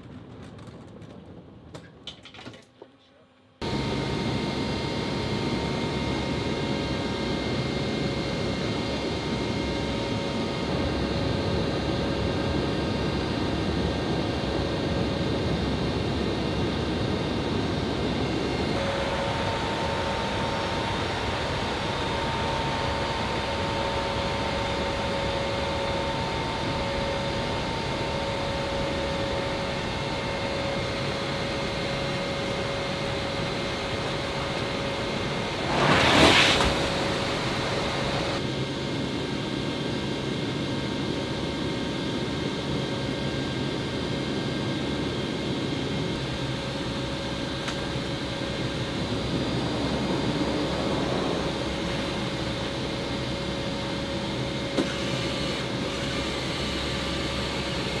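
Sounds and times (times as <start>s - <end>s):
turboprop engines droning: 3.5s - 58.0s
loud rush of noise: 35.0s - 38.4s, 48.3s - 54.2s.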